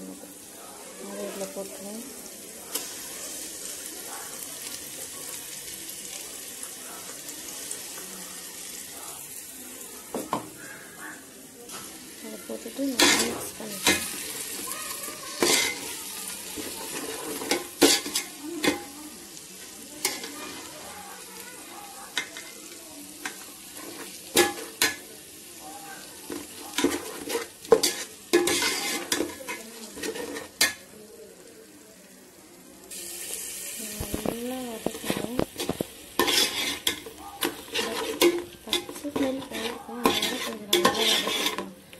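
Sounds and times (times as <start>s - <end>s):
food sizzling in oil: 0.0s - 41.9s
spoon scraping and knocking pot: 26.3s - 30.8s, 34.1s - 41.7s.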